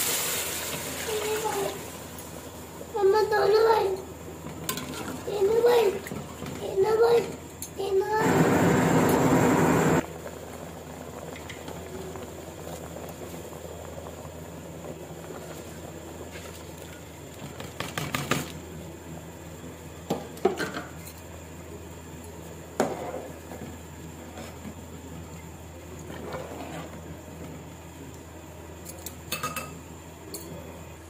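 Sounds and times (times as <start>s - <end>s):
pot of broth boiling: 0.0s - 20.0s
loud rush of noise: 8.2s - 10.0s.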